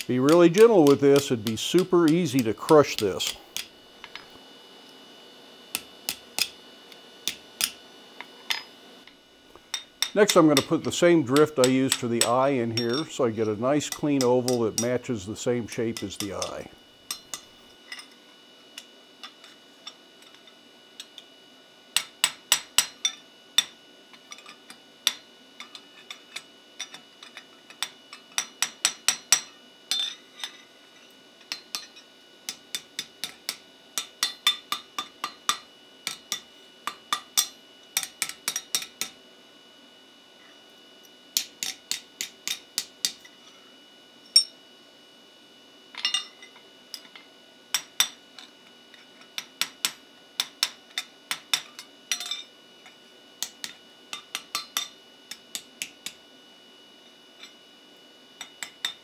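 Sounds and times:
metallic ring: 0:12.2 - 0:13.6, 0:29.3 - 0:30.7, 0:44.2 - 0:44.6, 0:45.9 - 0:47.2.

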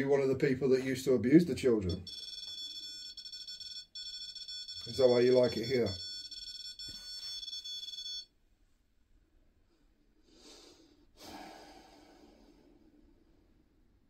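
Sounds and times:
soft breaths: 0:09.6 - 0:13.8.

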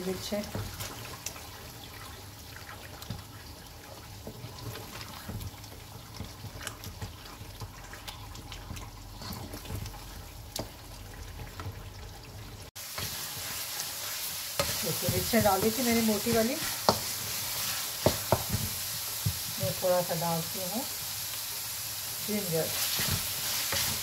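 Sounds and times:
gravy simmering and bubbling: 0:00.1 - 0:19.6
wooden spatula scraping pan: 0:12.9 - 0:19.5, 0:22.6 - 0:24.0.

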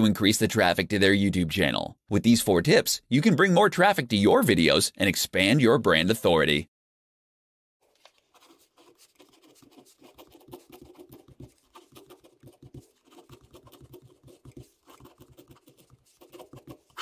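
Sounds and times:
ballpoint pen scratching on paper: 0:08.0 - 0:17.0.

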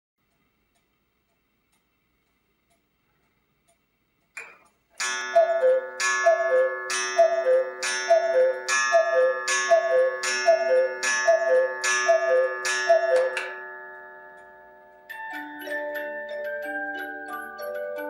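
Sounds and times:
clock mechanism whirring: 0:05.0 - 0:14.6
two-note cuckoo clock call: 0:05.0 - 0:18.0.

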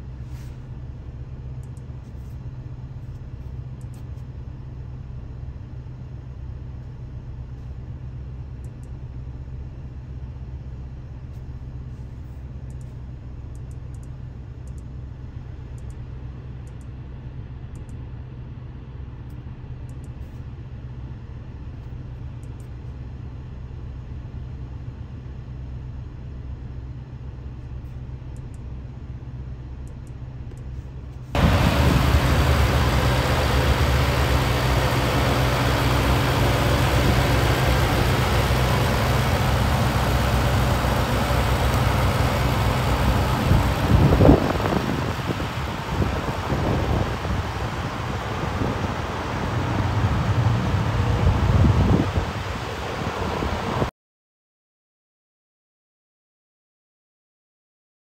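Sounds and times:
car engine: 0:31.2 - 0:53.8
wind and road noise: 0:31.2 - 0:53.9.

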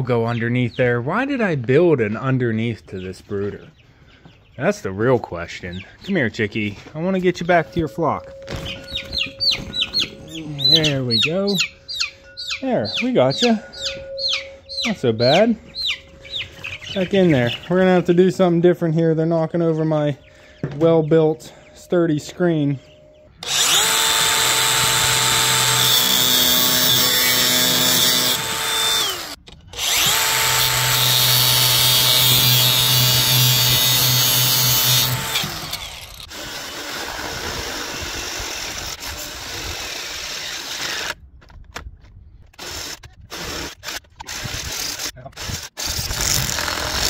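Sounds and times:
angle grinder cutting steel: 0:23.4 - 0:41.2
cordless drill bursts: 0:23.4 - 0:41.2, 0:42.6 - 0:47.0.

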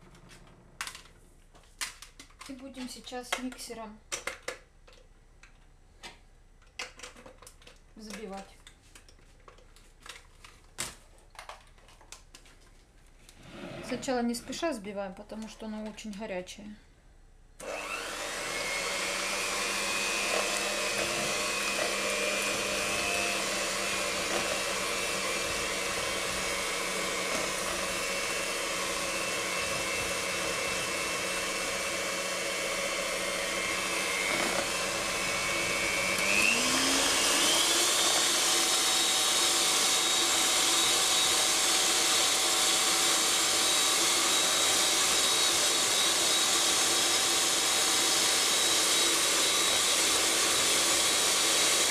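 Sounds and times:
electric hand mixer whining: 0:17.6 - 0:51.9.

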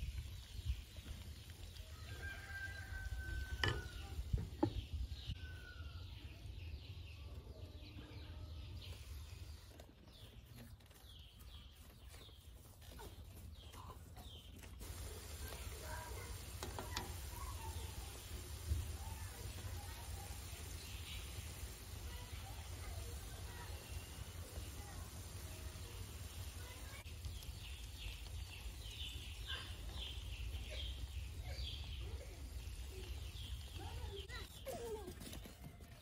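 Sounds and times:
rooster crowing: 0:01.9 - 0:03.9.

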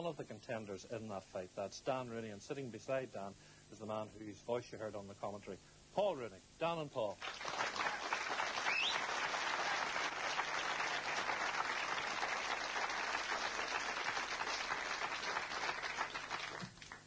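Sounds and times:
audience applauding: 0:07.2 - 0:17.0.

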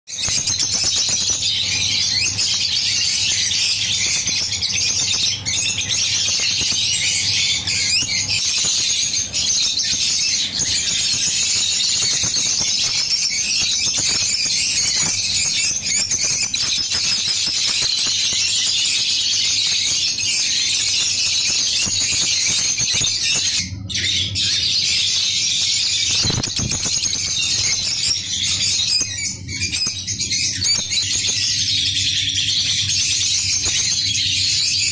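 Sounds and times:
lovebirds chattering: 0:00.1 - 0:34.9.

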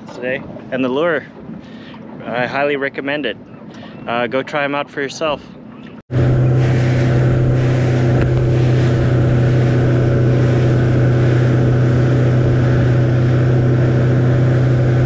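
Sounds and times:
motorboat engine running: 0:05.1 - 0:15.0.

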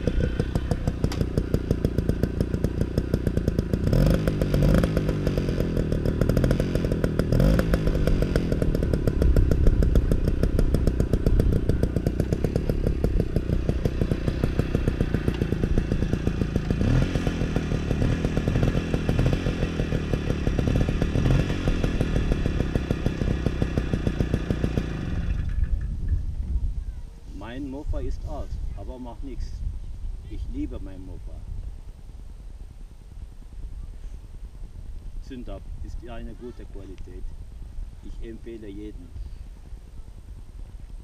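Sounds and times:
moped engine idling and revving: 0:00.0 - 0:29.4.

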